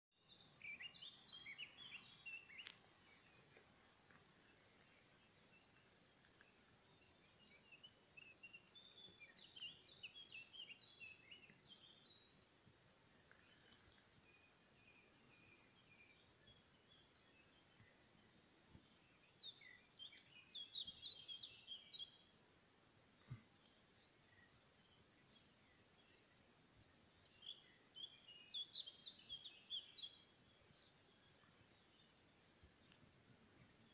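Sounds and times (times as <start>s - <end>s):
bird chirps: 0.2s - 3.6s, 6.4s - 12.4s, 19.0s - 22.3s, 27.2s - 31.0s.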